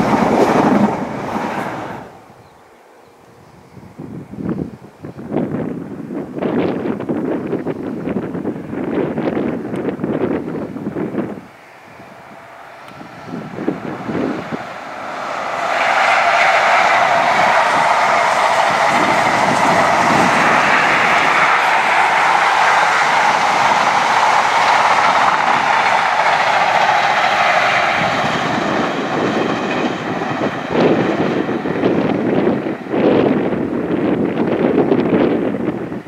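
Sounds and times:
train wheels rushing on rail: 0.0s - 2.4s, 4.0s - 36.0s
clickety-clack of wheels: 12.8s - 35.8s.

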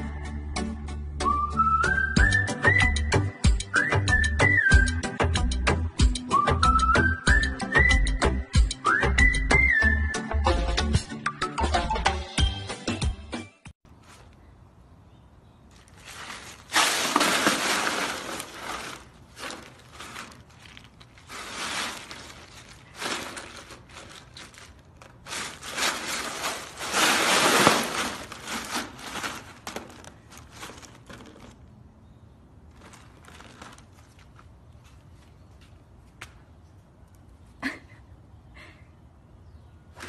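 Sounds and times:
ice cubes clattering and crunching: 15.8s - 31.6s.

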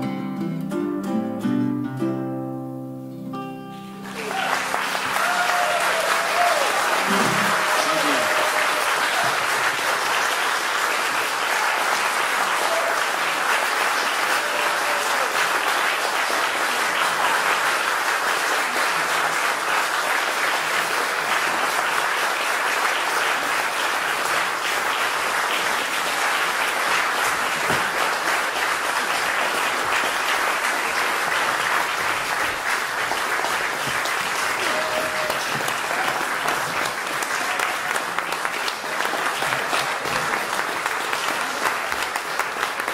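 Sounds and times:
audience applauding: 3.7s - 42.9s.

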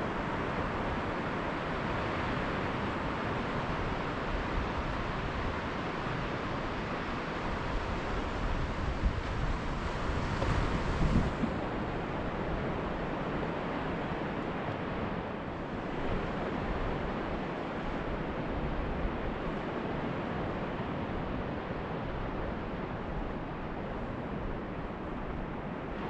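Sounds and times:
wind on microphone: 0.0s - 26.0s
surf breaking on beach: 7.8s - 13.4s.

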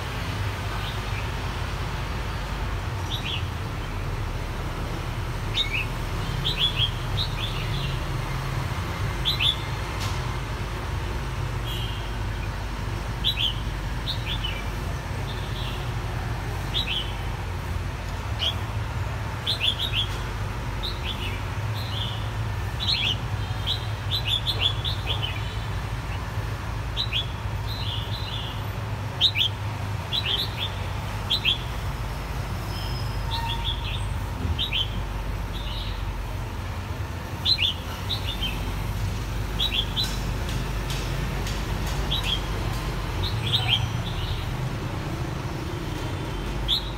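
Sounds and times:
bird chirping: 37.4s - 38.7s, 39.5s - 40.2s, 41.4s - 44.6s, 45.9s - 46.9s.

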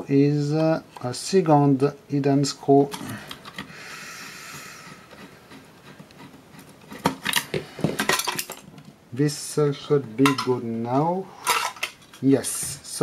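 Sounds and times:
screwdriver scraping: 4.8s - 7.6s.

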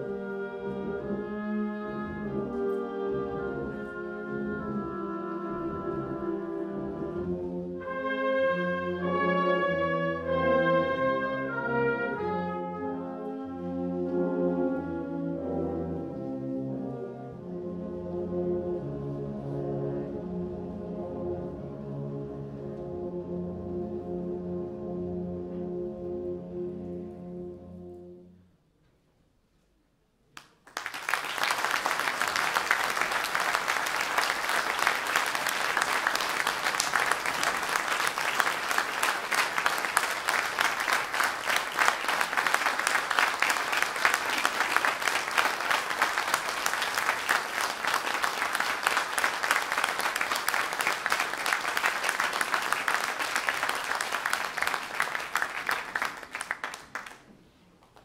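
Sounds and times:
audience applauding: 30.4s - 58.0s.

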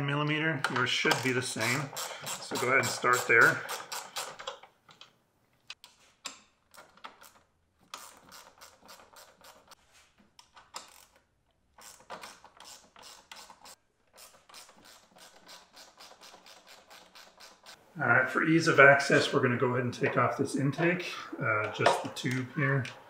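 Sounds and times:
socket ratchet clicking: 1.2s - 4.6s.

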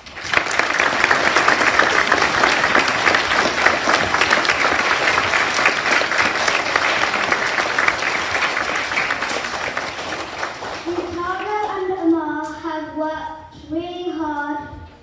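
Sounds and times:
children applauding: 0.0s - 11.8s.

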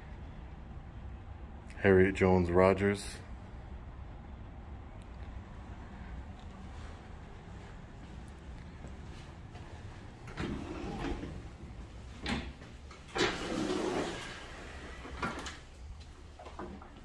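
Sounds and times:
automatic doors opening: 10.1s - 17.0s.

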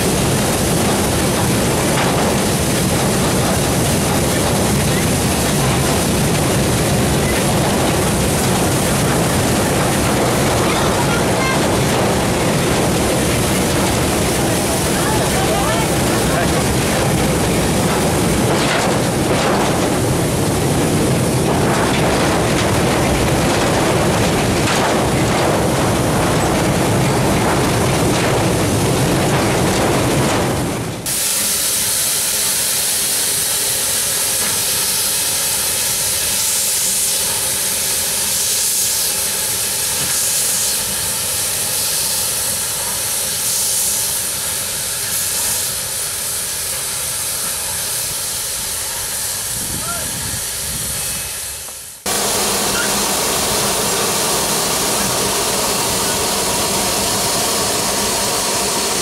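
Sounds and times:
steam hissing in pulses: 0.0s - 29.2s, 31.0s - 59.0s
steam train rumble: 0.0s - 59.0s
wind on microphone: 49.5s - 51.3s.

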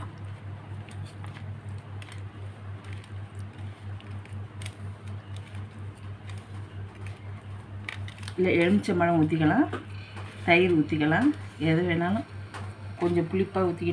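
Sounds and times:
low pulsing hum: 0.0s - 13.9s
hand mixing powder in glass bowl: 0.7s - 7.3s.

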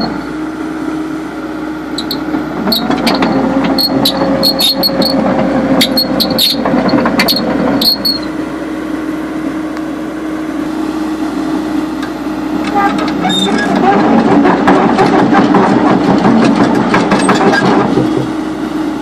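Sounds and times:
excavator diesel engine: 0.0s - 19.0s
steel tracks clanking and squealing: 2.0s - 8.3s, 12.6s - 18.3s.

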